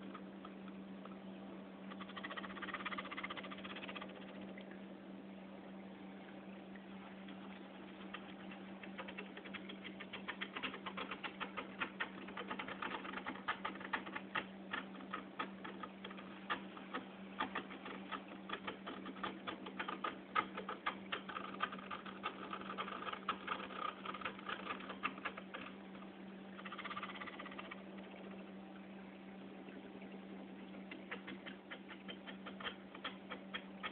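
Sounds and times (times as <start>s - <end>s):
steady low hum: 0.0s - 33.9s
scraper clicking on aquarium glass: 1.9s - 4.4s, 8.0s - 25.8s, 26.6s - 28.2s, 30.9s - 33.9s.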